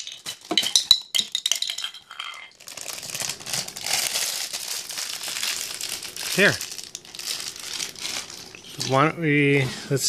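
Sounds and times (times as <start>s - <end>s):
plastic blocks clattering on tile: 0.0s - 4.4s.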